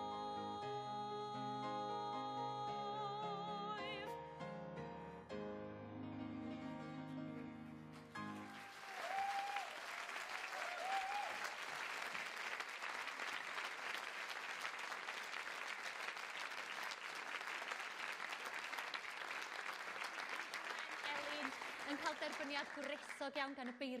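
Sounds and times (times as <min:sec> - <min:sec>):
audience applauding: 0:07.9 - 0:24.0.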